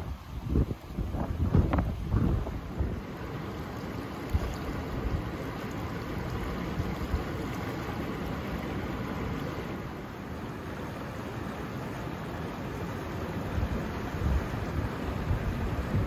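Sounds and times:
wind buffeting microphone: 0:00.0 - 0:03.1, 0:13.5 - 0:16.0
creek rushing over rocks: 0:00.0 - 0:16.0.

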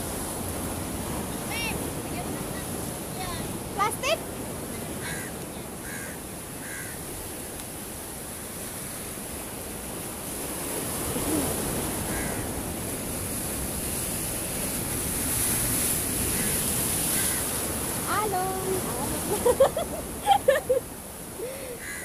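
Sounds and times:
sea surf breaking over rocks: 0:00.0 - 0:22.0
bird calls: 0:21.8 - 0:22.0.

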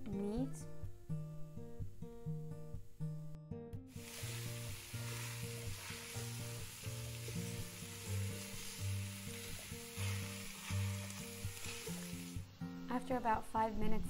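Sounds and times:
slow low background music: 0:00.0 - 0:14.0
sausage sizzling in a pot: 0:03.9 - 0:12.5
masher stirring meat: 0:04.0 - 0:12.4.

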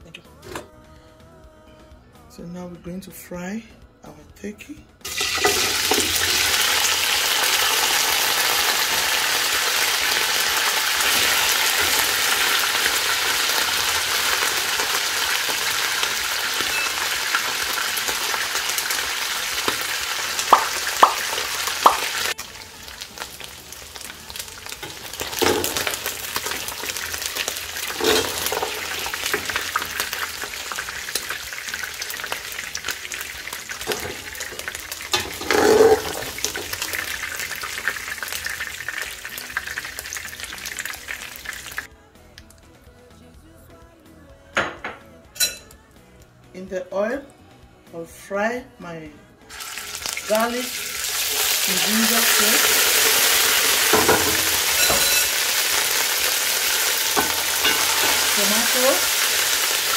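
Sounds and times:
meat frying in hot oil: 0:05.0 - 0:41.9, 0:49.5 - 0:59.9.

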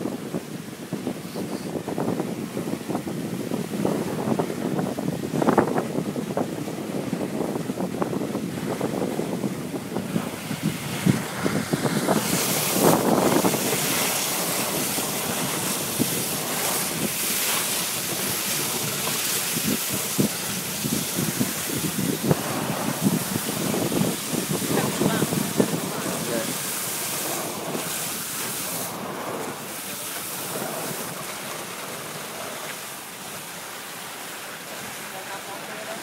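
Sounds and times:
sled runners hissing on snow: 0:00.0 - 0:02.9, 0:09.1 - 0:36.0
wind on microphone: 0:00.0 - 0:33.5.

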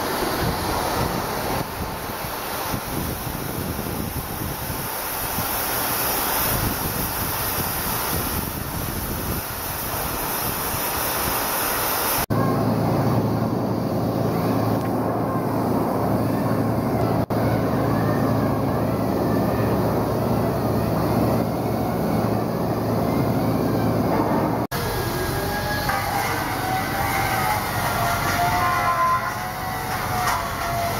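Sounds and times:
machinery hiss: 0:00.0 - 0:24.0
machinery drone with low hum: 0:12.3 - 0:30.9.

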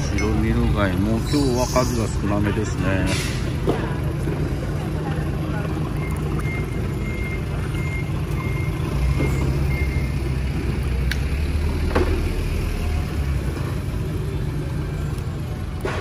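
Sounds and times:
engine rumbling: 0:00.0 - 0:16.0
reversing beeper: 0:05.9 - 0:10.6.

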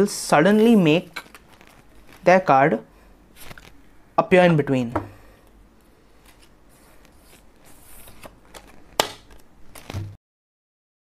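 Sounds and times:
playing cards rustling: 0:00.5 - 0:02.3, 0:03.4 - 0:03.8, 0:05.8 - 0:10.2.

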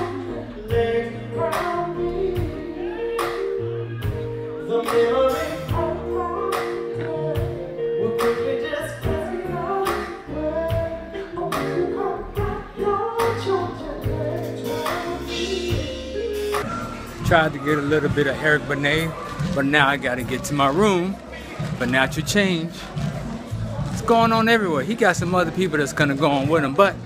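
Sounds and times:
man singing: 0:00.0 - 0:16.4.

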